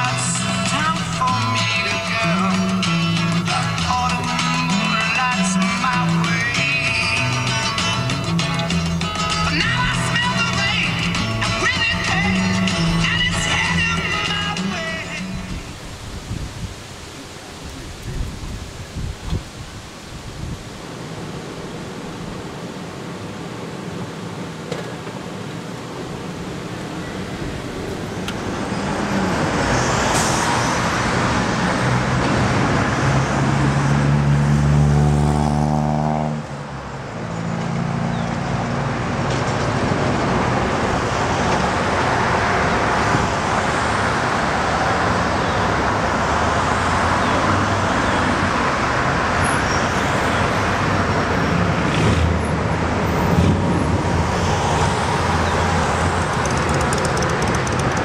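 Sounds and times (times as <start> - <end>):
heavy traffic rushing: 0.0 - 58.0
car engine running: 55.8 - 58.0.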